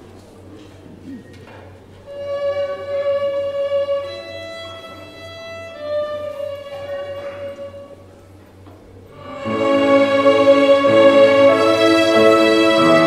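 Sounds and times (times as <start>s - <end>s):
violins playing in unison: 2.1s - 8.3s, 9.1s - 13.0s.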